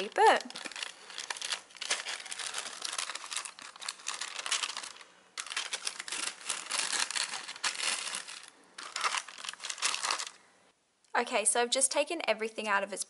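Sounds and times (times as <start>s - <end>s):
paper crinkling and rustling: 0.0s - 10.4s.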